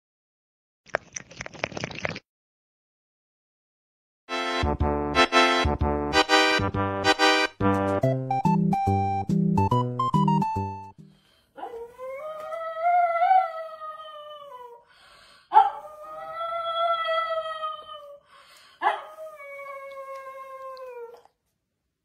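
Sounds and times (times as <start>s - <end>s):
dog howling: 18.8s - 21.3s.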